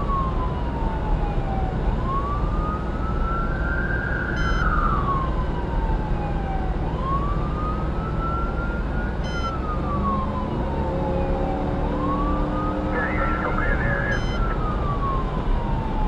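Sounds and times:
road and engine noise: 0.0 - 16.0
siren wailing: 0.0 - 16.0
short beeps: 4.4 - 4.7, 9.2 - 9.6, 13.2 - 14.5.

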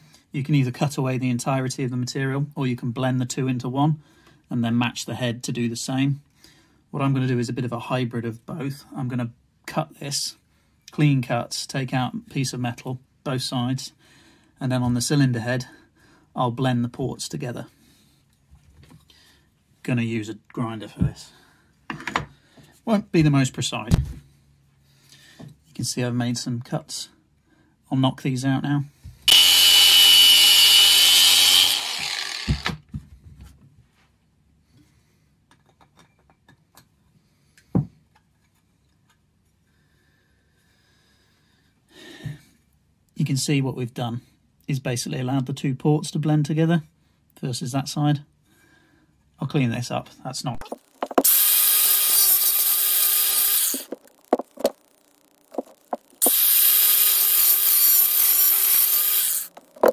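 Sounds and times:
angle grinder cutting metal: 29.3 - 32.8, 50.8 - 54.8, 55.6 - 59.9.

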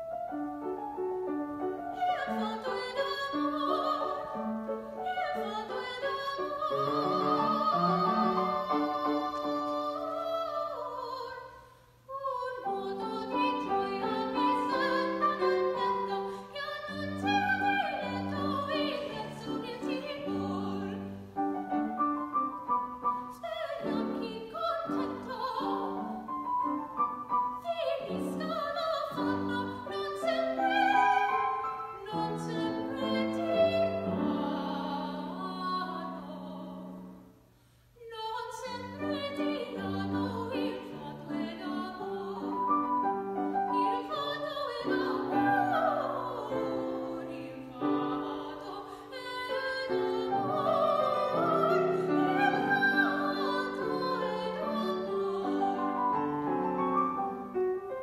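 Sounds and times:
piano chords: 38.8 - 58.0.

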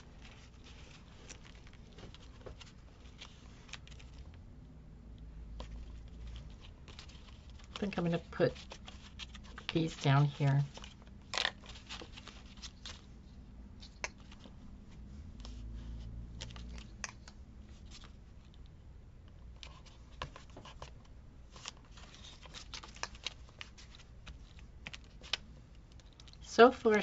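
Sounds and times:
paper rustling: 0.0 - 4.3, 5.6 - 13.2, 19.6 - 27.0.

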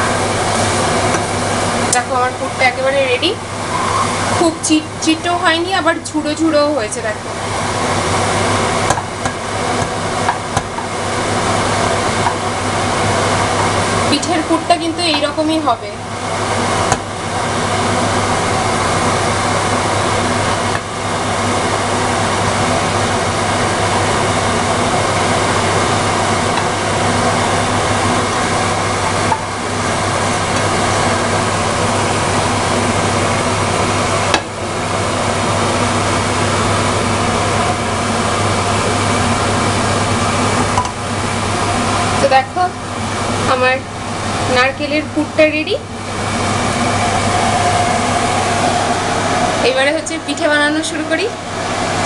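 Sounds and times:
fan running: 0.0 - 52.0
low hum: 45.9 - 52.0.

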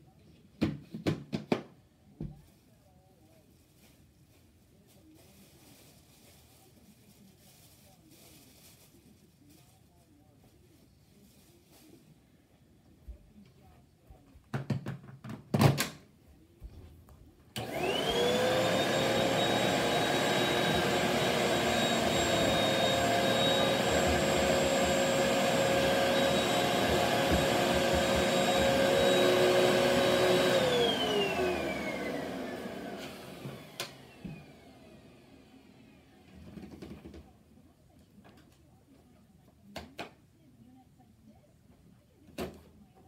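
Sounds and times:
vacuum cleaner running: 17.6 - 36.3.

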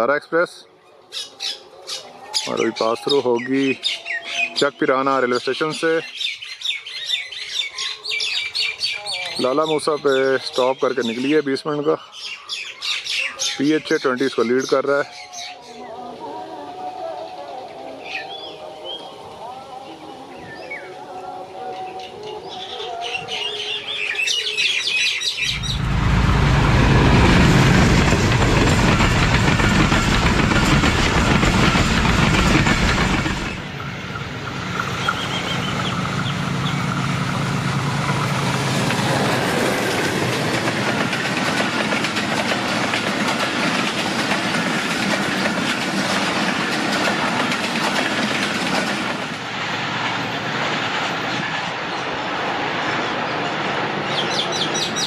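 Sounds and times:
locomotive engine rumble: 25.4 - 52.9
train wheels clattering on rails: 25.4 - 55.0.

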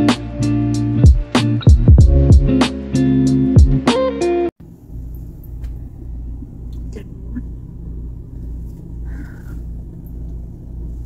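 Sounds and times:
low pulsing rumbling hum: 4.7 - 11.0.

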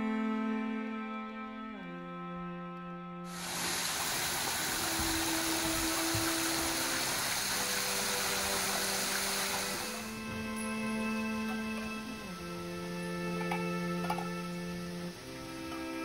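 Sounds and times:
soft instrumental music: 0.0 - 16.0
water spilling over a weir: 3.3 - 16.0.

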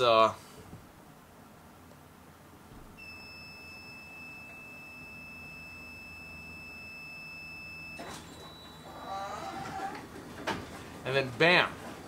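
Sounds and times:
high-pitched electronic warning beep: 3.0 - 9.0.

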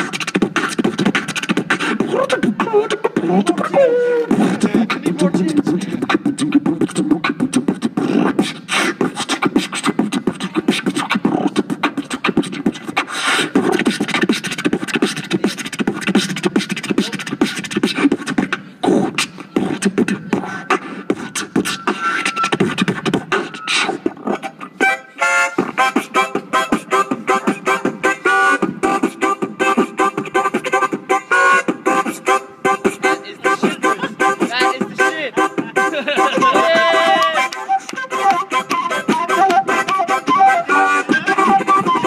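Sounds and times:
beatboxing: 0.0 - 42.0.

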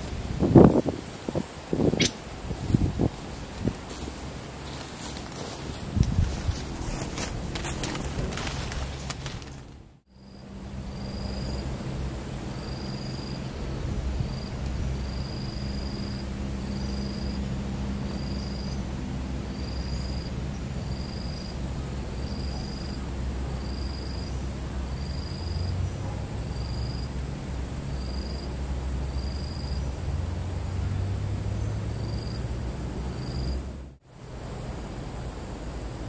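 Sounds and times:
shrill insect drone: 10.1 - 36.0.

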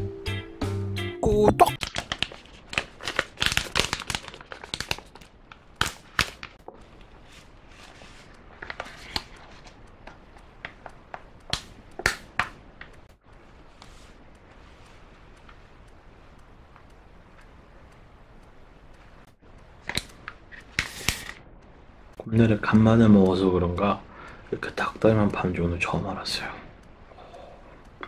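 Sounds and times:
plastic sachets crinkling: 1.8 - 6.6.

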